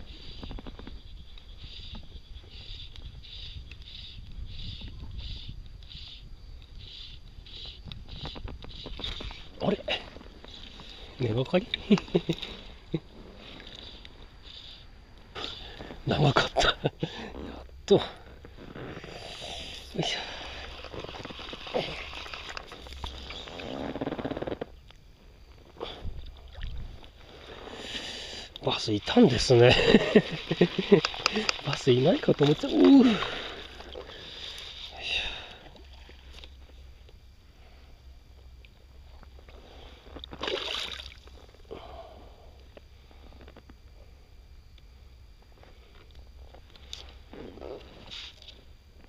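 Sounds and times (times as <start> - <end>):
steady low rumble: 1.0 - 40.4
microphone rubbing against shirt: 1.6 - 11.2, 18.2 - 24.8
fish splashing in water: 40.4 - 41.4.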